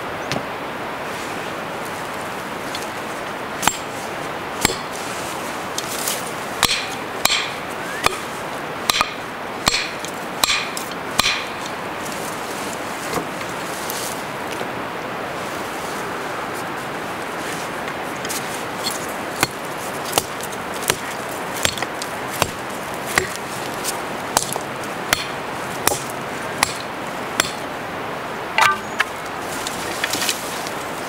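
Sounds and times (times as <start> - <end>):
metal tool striking stones: 3.6 - 3.9, 4.6 - 4.9, 6.6 - 8.2, 8.9 - 11.6, 18.8 - 23.4, 24.4 - 27.6, 28.6 - 29.1.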